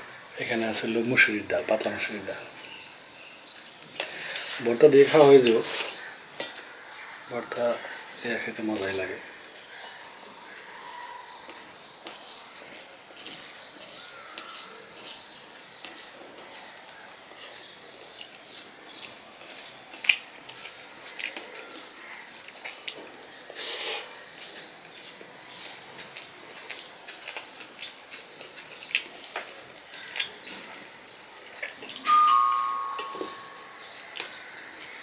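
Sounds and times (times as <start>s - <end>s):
fingers squishing rice on plate: 10.8s - 17.0s, 19.0s - 23.6s
wet chewing and lip smacks: 19.0s - 21.5s, 22.3s - 23.5s, 24.4s - 30.4s, 33.3s - 35.0s.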